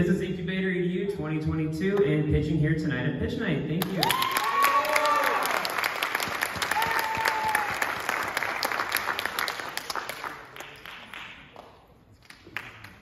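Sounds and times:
audience applauding: 3.9 - 13.0.

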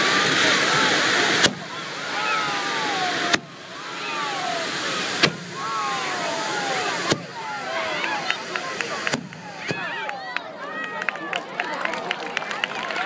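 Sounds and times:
firework bangs: 0.0 - 9.9
fireworks spraying hiss: 0.0 - 9.9.

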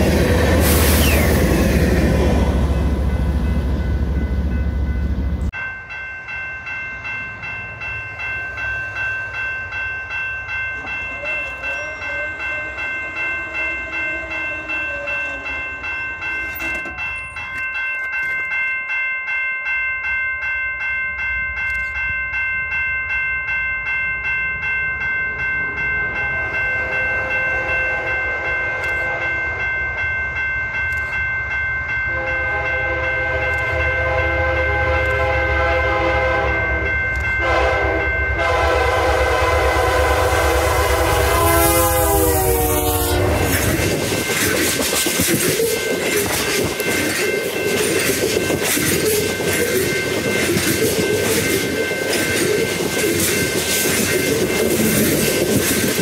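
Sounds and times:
low rumble of train: 0.0 - 56.0
railroad crossing bell ringing: 0.0 - 56.0
train horn blasts: 11.5 - 15.6, 26.2 - 29.6, 32.1 - 43.7.

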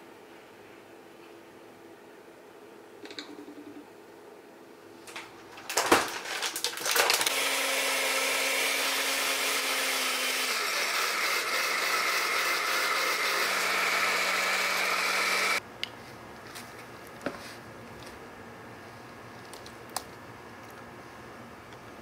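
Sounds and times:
blender motor whirring: 6.9 - 15.6.

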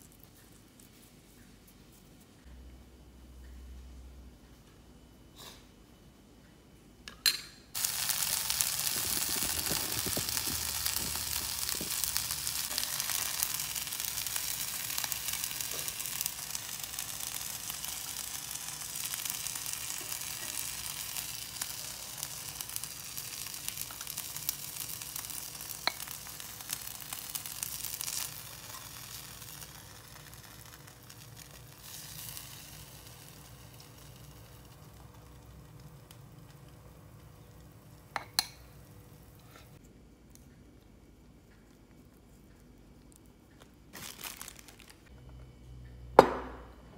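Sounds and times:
food sizzling in a skillet: 7.8 - 35.7.

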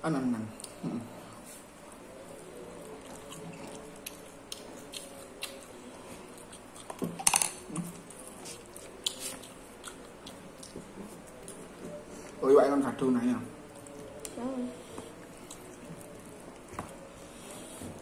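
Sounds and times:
person chewing: 2.3 - 12.4, 13.6 - 18.0.

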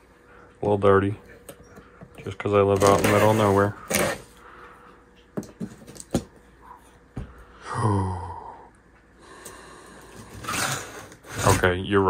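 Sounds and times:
man humming or sighing: 7.6 - 8.8.

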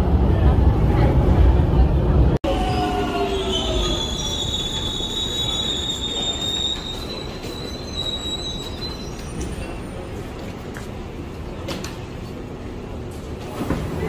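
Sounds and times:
train wheels squealing on rails: 2.5 - 10.5.

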